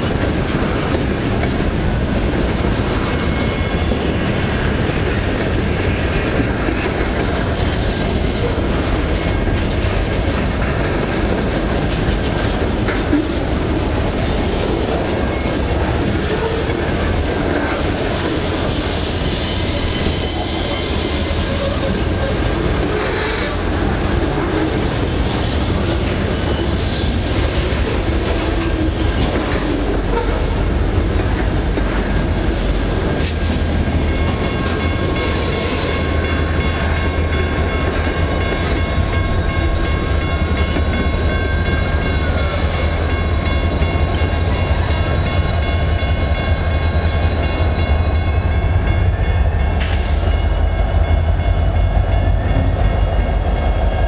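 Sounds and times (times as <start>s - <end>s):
high wheel squeal: 18.8s - 23.6s, 25.4s - 27.8s, 32.4s - 33.0s, 44.9s - 54.0s.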